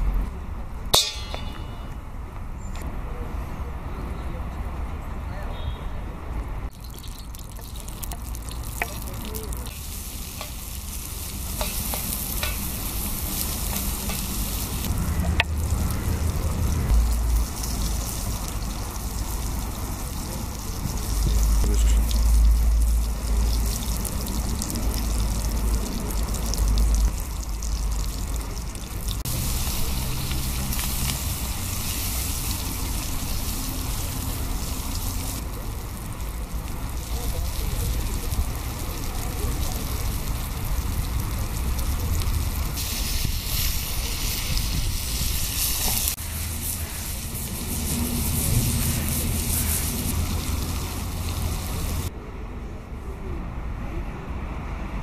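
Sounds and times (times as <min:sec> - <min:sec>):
vegetables sizzling in oil: 0:06.7 - 0:52.1
low rumble: 0:14.4 - 0:19.6.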